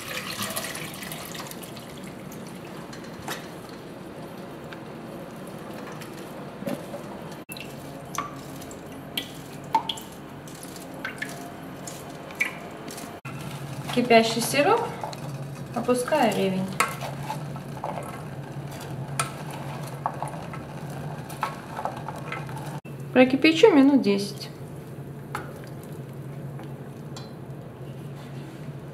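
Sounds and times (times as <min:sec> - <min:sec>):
water dripping and trickling: 0:00.0 - 0:02.7, 0:07.5 - 0:11.4.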